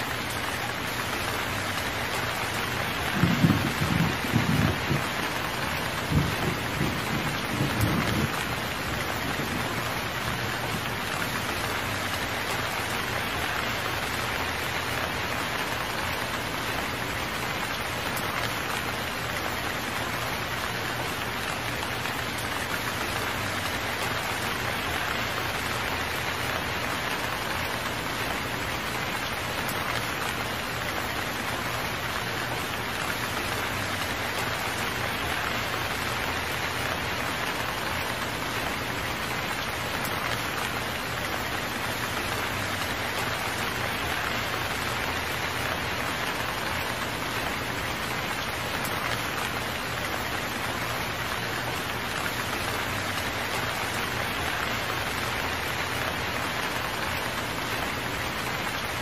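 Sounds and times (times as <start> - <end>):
steady rain falling: 0.0 - 59.0
low rolls of thunder: 3.0 - 10.9.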